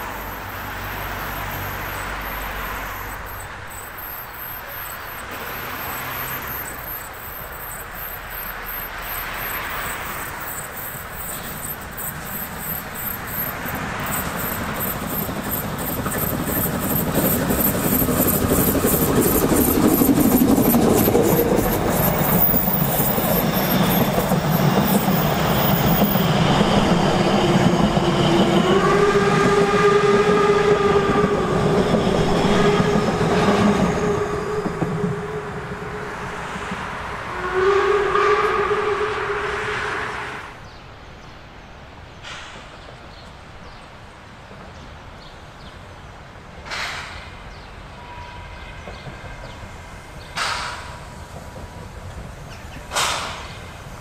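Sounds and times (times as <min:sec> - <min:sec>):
steam train running past: 0:00.0 - 0:54.0
steam whistle blowing: 0:27.5 - 0:40.6.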